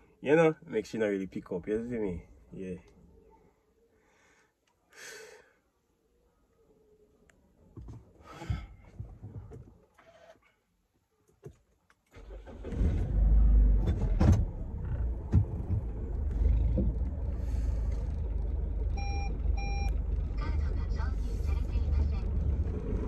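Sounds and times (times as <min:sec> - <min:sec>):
car engine starting and idling: 0:12.1 - 0:23.0
short electronic beep: 0:19.0 - 0:20.0.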